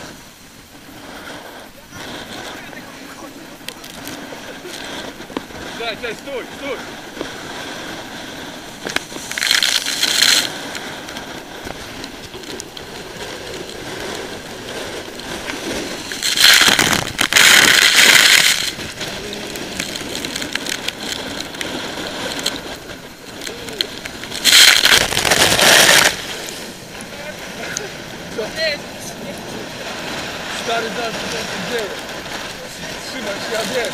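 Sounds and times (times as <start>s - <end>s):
storm waves breaking: 0.0s - 33.9s
water spray rushing over camera: 0.0s - 33.9s
wind: 0.0s - 33.9s.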